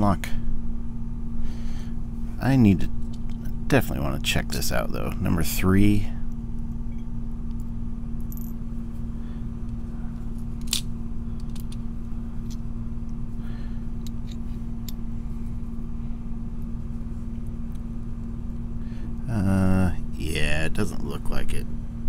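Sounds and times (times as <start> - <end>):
low background hum: 0.0 - 22.0.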